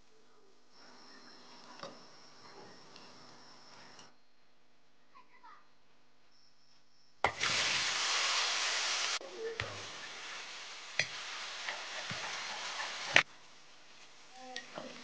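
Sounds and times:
food sizzling in a wok: 7.2s - 15.0s.

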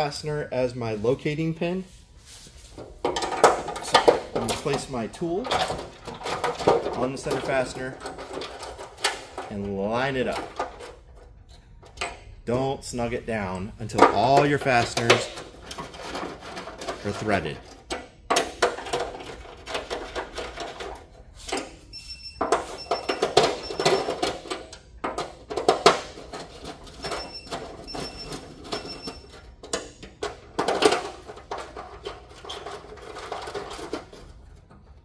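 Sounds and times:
plastic rails knocking and rattling: 22.4s - 27.7s.

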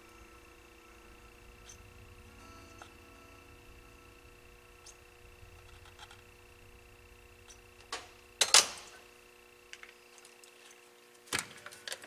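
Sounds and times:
soldering iron clattering: 0.7s - 10.0s.

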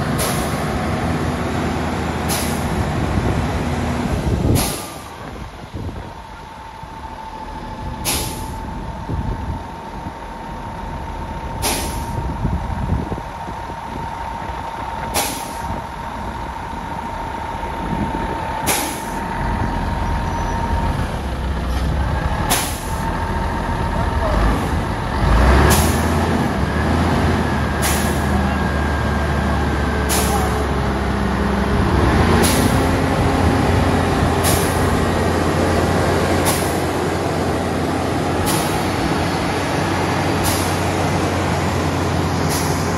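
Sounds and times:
low engine drone: 0.0s - 42.9s
short air hisses: 0.2s - 0.6s, 2.3s - 2.6s, 4.6s - 5.1s, 8.0s - 8.6s, 11.6s - 12.2s, 15.2s - 15.7s, 18.7s - 19.2s, 27.8s - 28.3s, 30.1s - 30.6s, 40.4s - 40.8s, 42.5s - 42.9s.

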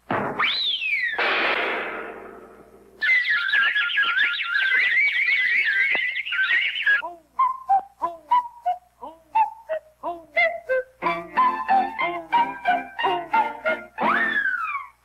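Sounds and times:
cartoon bird whistled twitter: 0.4s - 1.2s, 3.0s - 7.0s, 14.0s - 15.0s
descending whistled notes: 0.4s - 1.2s, 3.0s - 8.8s, 14.0s - 15.0s.

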